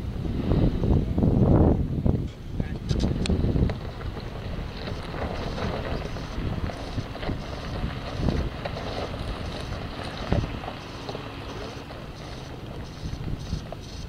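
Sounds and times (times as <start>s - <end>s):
wind buffeting microphone: 0.0s - 14.0s
suv engine running: 2.9s - 14.0s.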